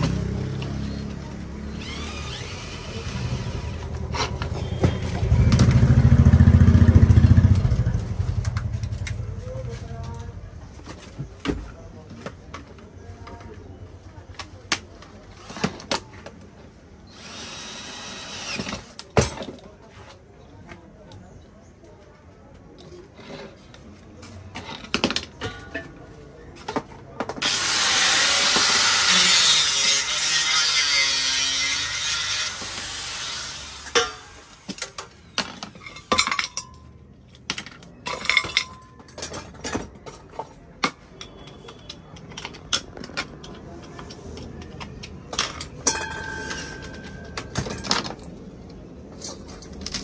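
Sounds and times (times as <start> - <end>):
loud metal scraping: 27.4 - 34.7.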